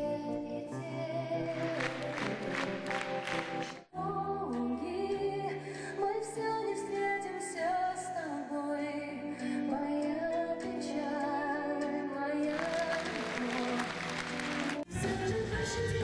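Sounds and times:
woman singing into microphone: 0.0s - 2.5s, 4.0s - 16.0s
instrumental accompaniment: 1.4s - 3.9s
audience applause: 1.5s - 3.8s, 12.5s - 14.9s.

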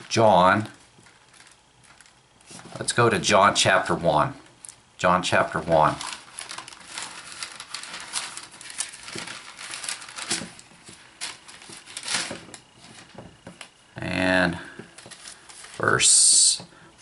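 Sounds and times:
book pages rustling: 0.6s - 3.0s, 5.8s - 13.8s, 14.8s - 16.0s.

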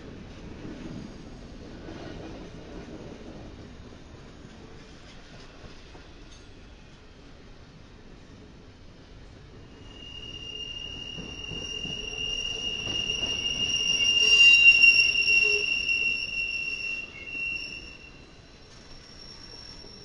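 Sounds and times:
train wheels squealing on rails: 9.5s - 20.0s.

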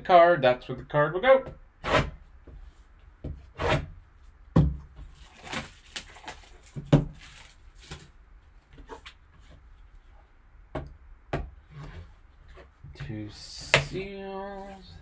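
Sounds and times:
plastic wrap rustling: 5.0s - 9.2s.

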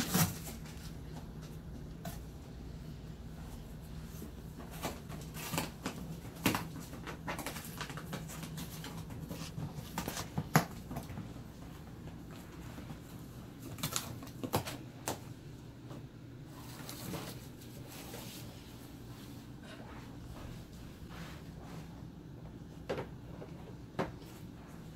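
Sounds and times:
puppy tearing cardboard: 0.0s - 1.0s, 4.6s - 11.2s.

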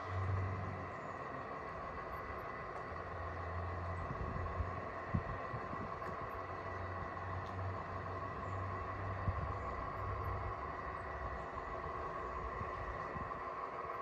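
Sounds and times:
electric motor hum with whine: 0.0s - 14.0s
wind on microphone: 4.0s - 6.0s.

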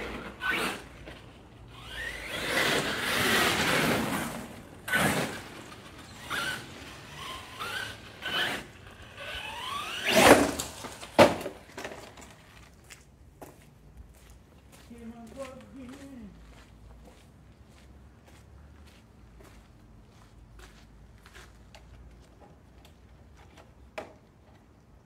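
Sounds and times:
electric motor whining: 0.0s - 11.2s.

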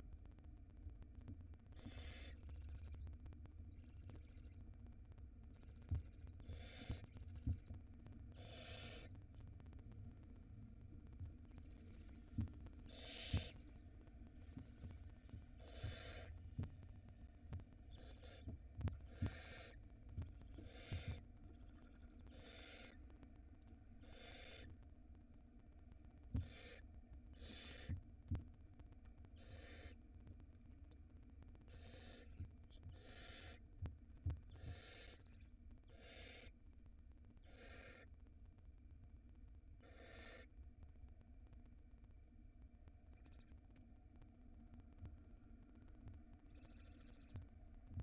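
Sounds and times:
owl nestlings hissing calls: 1.8s - 3.0s, 3.7s - 4.6s, 5.5s - 9.1s, 11.5s - 13.8s, 14.4s - 16.4s, 17.9s - 23.0s, 24.0s - 24.7s, 26.4s - 28.0s, 29.4s - 30.0s, 31.7s - 33.6s, 34.5s - 36.6s, 37.4s - 38.1s, 39.8s - 40.5s, 43.1s - 43.6s, 46.5s - 47.4s.

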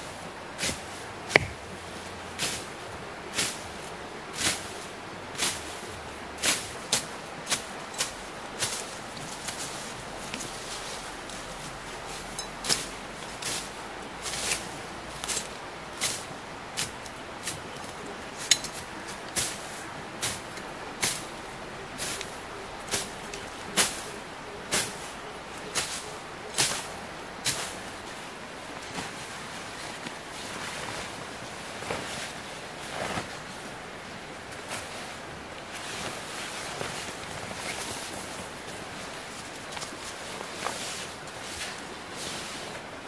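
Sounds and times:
machete chopping ground: 1.3s - 1.6s.

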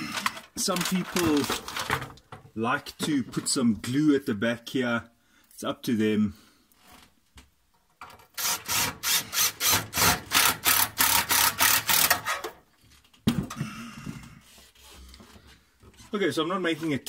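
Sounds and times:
impact driver driving a screw: 8.4s - 12.5s.

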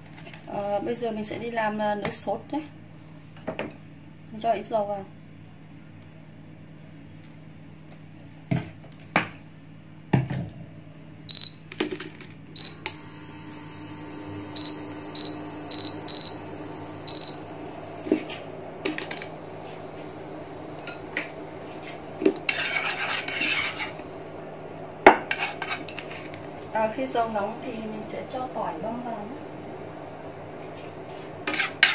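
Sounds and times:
cooktop fan humming: 0.0s - 31.9s
cooktop touch control beeps: 11.3s - 11.7s, 12.6s - 18.1s, 20.7s - 21.4s
chopstick scraping pan: 22.3s - 24.0s, 25.3s - 26.4s, 31.4s - 31.9s.

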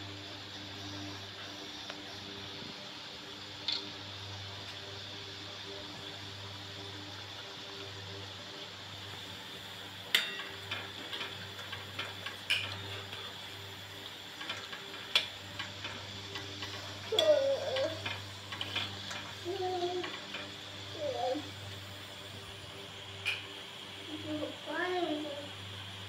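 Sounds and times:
food sizzling in hot oil: 0.0s - 26.0s
metal spoon clinking on pan: 10.1s - 10.7s.

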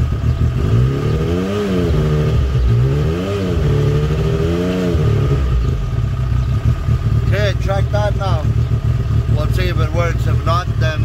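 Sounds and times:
quad engine revving and idling: 0.0s - 11.0s.

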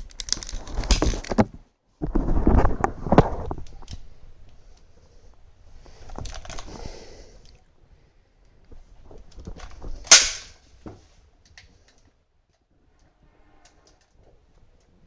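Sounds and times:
rustling: 0.0s - 7.6s
toy gun bang: 10.1s - 10.6s.

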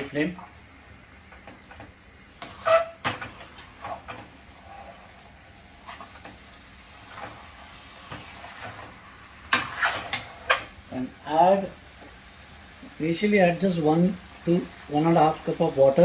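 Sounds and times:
metal spatula scraping a steel pan: 2.4s - 5.2s, 7.0s - 10.7s.

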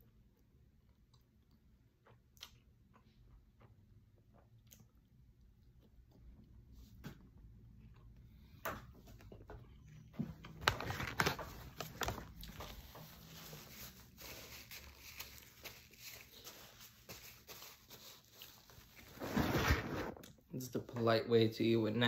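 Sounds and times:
paper napkin crinkling: 10.6s - 20.2s.

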